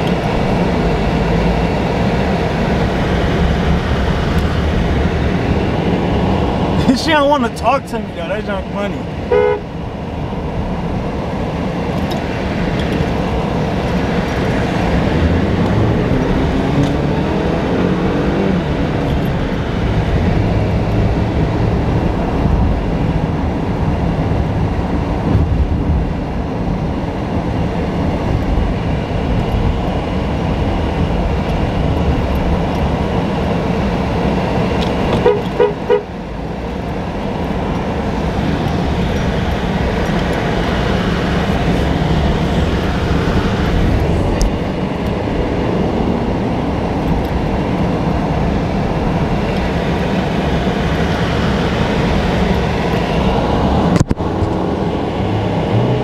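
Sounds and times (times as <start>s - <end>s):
car engine and road noise: 0.0s - 56.0s
car horn toots: 9.3s - 9.7s, 35.2s - 36.1s.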